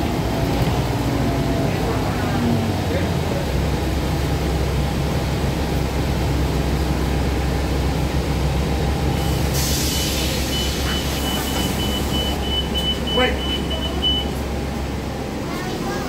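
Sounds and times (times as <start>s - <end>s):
bus engine running: 0.0s - 16.0s
air hiss: 9.3s - 10.5s
high warning beeps: 10.0s - 14.4s.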